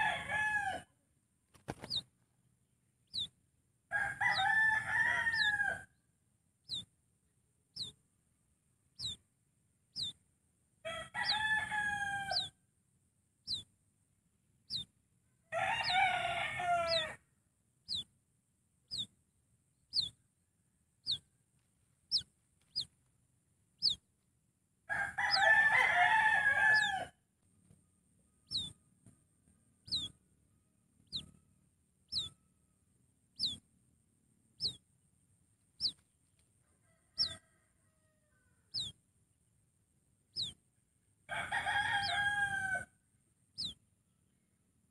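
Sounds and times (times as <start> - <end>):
rooster crowing: 0.0 - 0.9, 3.9 - 5.9, 10.8 - 12.6, 15.5 - 17.2, 24.9 - 27.2, 36.6 - 38.9, 41.3 - 43.0
small bird chirping: 1.5 - 2.3, 2.9 - 3.5, 4.2 - 5.7, 6.6 - 12.6, 13.3 - 13.9, 14.5 - 17.2, 17.8 - 24.4, 25.2 - 25.8, 26.4 - 37.5, 38.6 - 42.5, 43.2 - 44.9.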